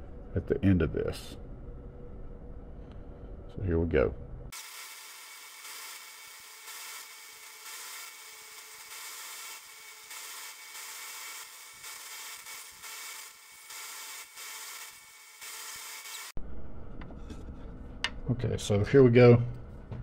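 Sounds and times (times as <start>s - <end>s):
belt sander grinding wood: 4.5s - 16.4s.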